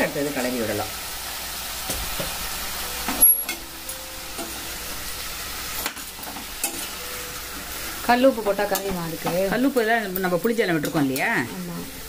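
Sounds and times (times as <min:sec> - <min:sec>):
vegetables sizzling in oil: 0:00.0 - 0:12.0
spoon scraping and knocking pan: 0:05.8 - 0:07.0.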